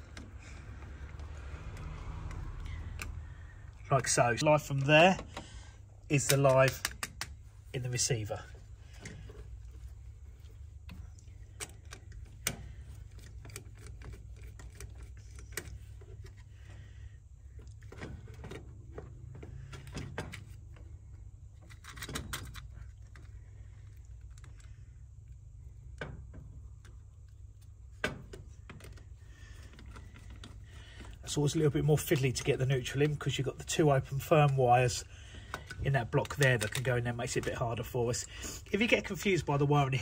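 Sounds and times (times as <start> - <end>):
steady low hum: 0.0 - 40.0
wires and plastic plate clicking: 4.8 - 7.4, 35.3 - 37.6.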